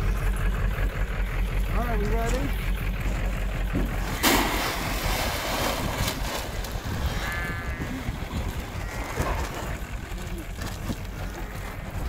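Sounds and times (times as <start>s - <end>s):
pellets rattling into metal trough: 4.0s - 7.4s
alpaca humming: 6.5s - 12.0s.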